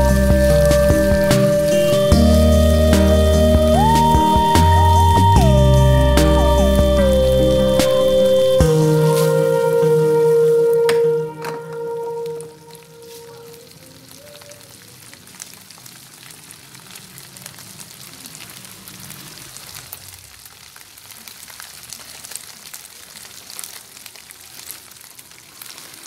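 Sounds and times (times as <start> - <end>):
fish sizzling in a pan: 0.0 - 9.5, 13.0 - 26.0
background music: 0.0 - 12.8.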